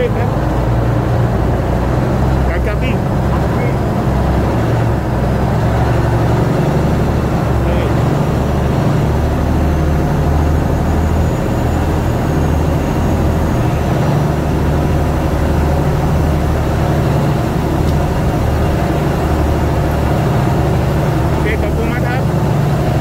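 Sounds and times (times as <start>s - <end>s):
boat diesel engine rumbling: 0.0s - 23.0s.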